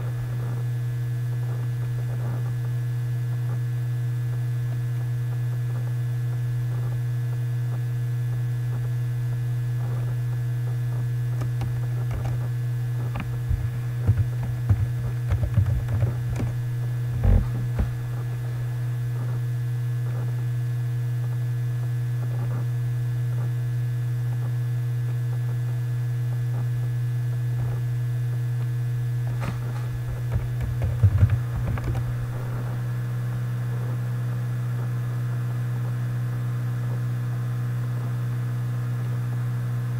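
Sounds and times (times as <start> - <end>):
low electrical hum: 0.0 - 39.9
keyboard typing and clicks: 14.1 - 16.5.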